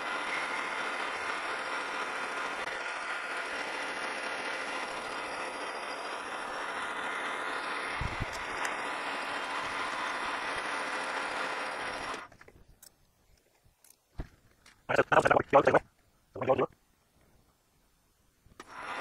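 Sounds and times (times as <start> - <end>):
metal lathe whirring: 0.0 - 12.3, 18.6 - 19.0.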